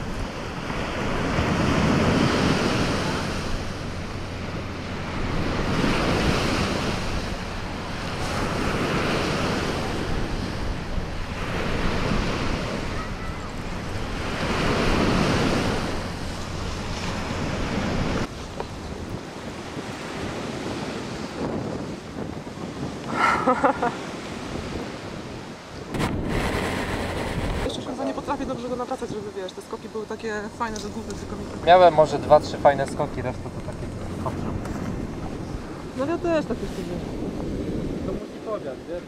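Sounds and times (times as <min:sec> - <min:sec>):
surf washing onto beach: 0:00.0 - 0:39.0
wind buffeting microphone: 0:00.0 - 0:39.0.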